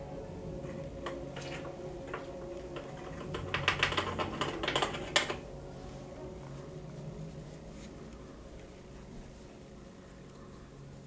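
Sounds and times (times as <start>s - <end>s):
steady low hum: 0.0s - 11.0s
wooden stick clicking in plastic bottle: 1.0s - 5.4s.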